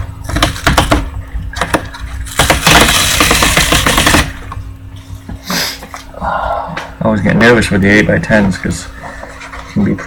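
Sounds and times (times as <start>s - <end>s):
packaging crackling: 2.2s - 4.4s.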